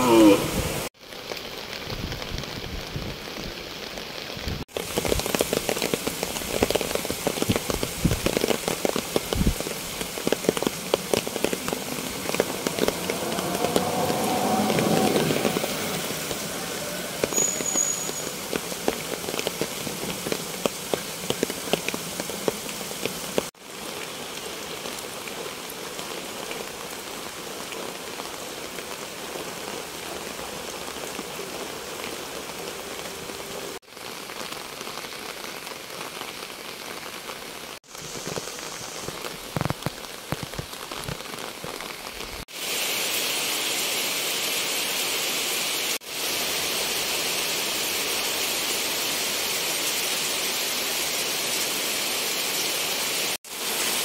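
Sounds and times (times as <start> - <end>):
heavy rain downpour: 0.0 - 54.0
raindrops ticking: 4.7 - 16.5, 17.2 - 25.6, 37.8 - 42.2.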